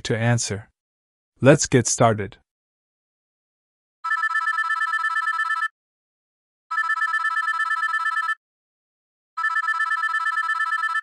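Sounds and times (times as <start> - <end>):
telephone ringing trill: 4.0 - 5.8, 6.7 - 8.4, 9.4 - 11.0.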